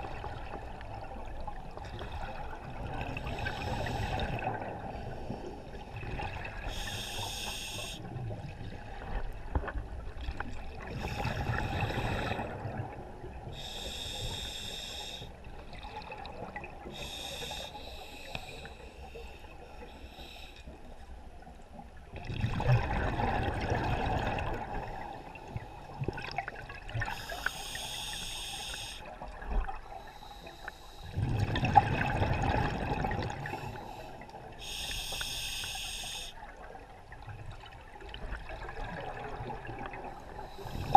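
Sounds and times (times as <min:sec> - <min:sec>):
hissing regulator inhalations: 0:06.7 - 0:08.0, 0:13.6 - 0:15.3, 0:16.9 - 0:19.0, 0:27.1 - 0:29.1, 0:33.6 - 0:36.4.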